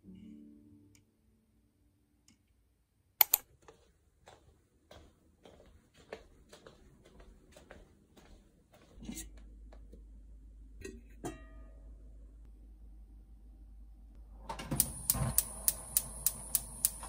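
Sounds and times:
footsteps on laminate floor: 3.5 - 9.9
low steady hum: 6.3 - 17.0.

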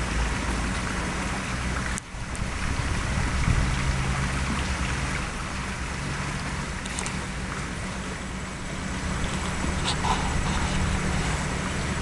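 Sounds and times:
wind buffeting microphone: 2.2 - 5.6.

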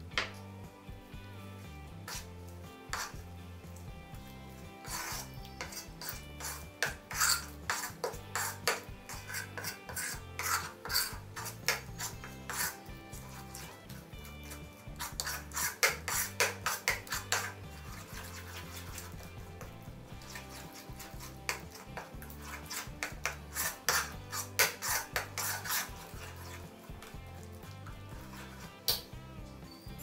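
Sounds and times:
metal spoon scraping ceramic bowl: 2.1 - 2.3, 2.9 - 3.2, 4.8 - 27.4, 28.1 - 29.0.

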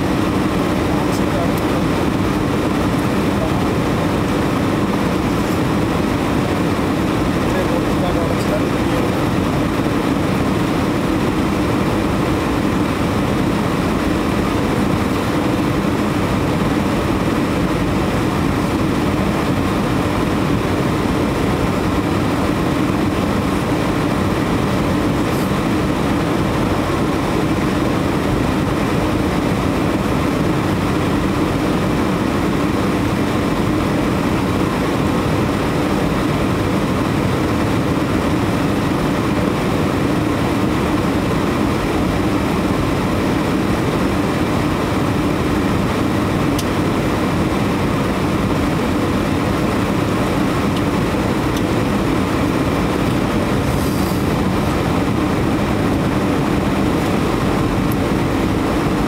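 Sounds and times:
jet engine cabin hum: 0.0 - 59.0
airflow hiss: 53.6 - 55.3.

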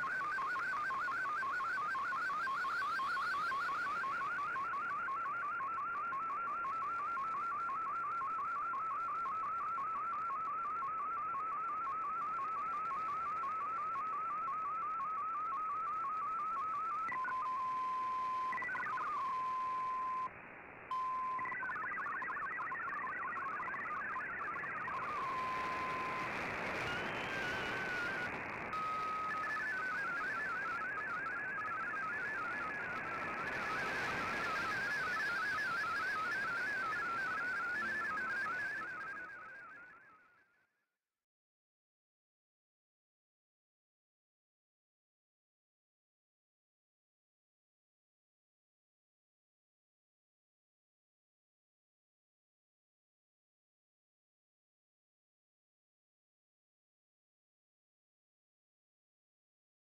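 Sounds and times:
steady radio tone: 21.0 - 39.6
warbling digital data tones: 21.0 - 40.1
radio static hiss: 24.8 - 39.0.

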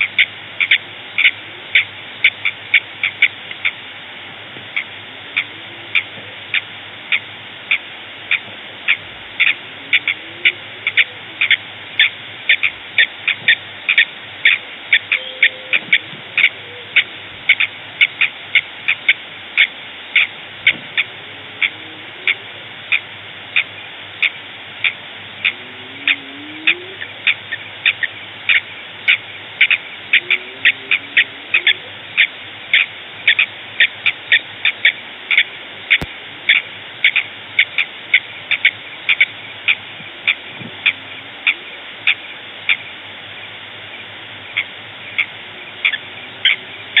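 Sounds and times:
faint lower gliding calls: 0.0 - 47.0
high chirping calls: 4.7 - 23.0.

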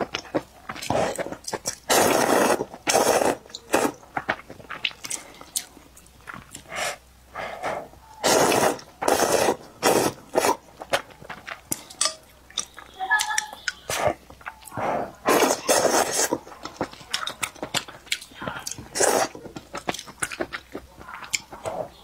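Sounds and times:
wet chewing: 0.0 - 22.0
person slurping noodles: 0.8 - 4.0, 7.7 - 10.6, 13.9 - 16.4, 18.6 - 19.4.

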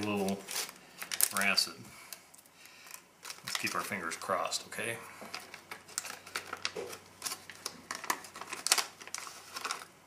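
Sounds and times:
foil pouch tearing and crinkling: 0.0 - 1.6, 2.8 - 4.1, 5.3 - 10.0.

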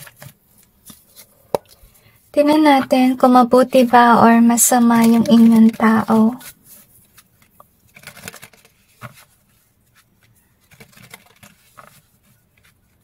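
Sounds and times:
cards shuffling: 4.8 - 13.0.

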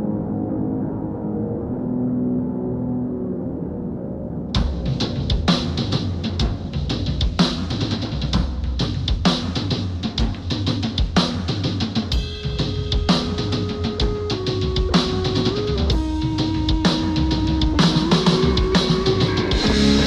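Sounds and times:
noise rock music: 0.0 - 20.0
drum kit driving beat: 4.6 - 20.0.

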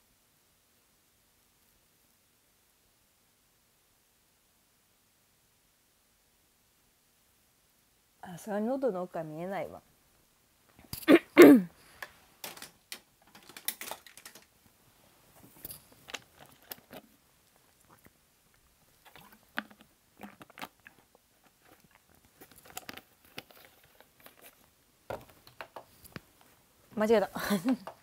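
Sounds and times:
handling clicks and rustles: 12.0 - 17.7, 18.9 - 28.0.

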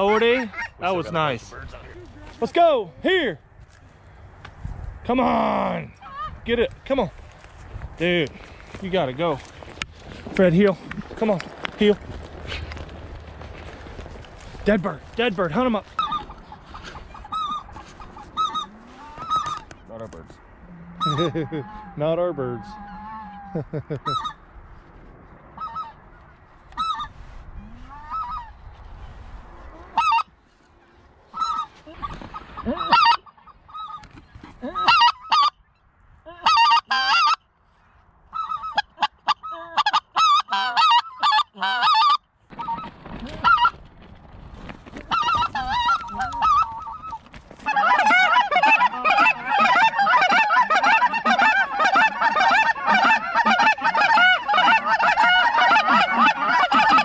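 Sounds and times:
goose calls honking: 15.5 - 19.7, 20.7 - 24.4, 25.6 - 26.0, 29.8 - 30.3, 31.3 - 35.6, 36.4 - 37.4, 38.4 - 43.8, 45.1 - 57.0.

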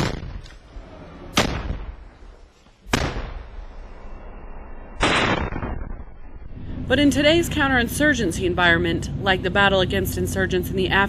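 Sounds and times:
gunfire burst: 0.0 - 0.4, 1.3 - 2.0, 5.0 - 6.2
gunshots with echo: 0.0 - 0.4, 5.0 - 5.9.

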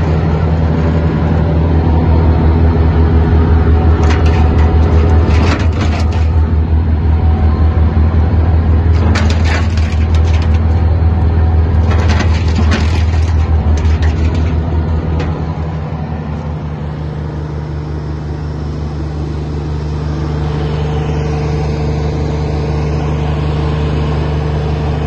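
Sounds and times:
wood chipper running: 0.0 - 25.0.

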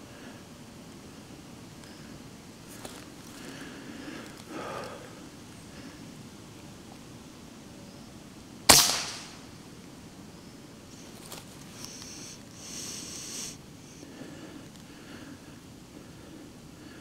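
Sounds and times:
soft rustle: 1.8 - 5.0, 10.9 - 12.6
air rifle shot: 8.7 - 9.5.

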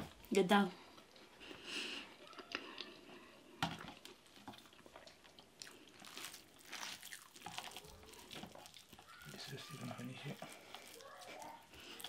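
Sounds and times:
person chewing food: 0.8 - 12.0.

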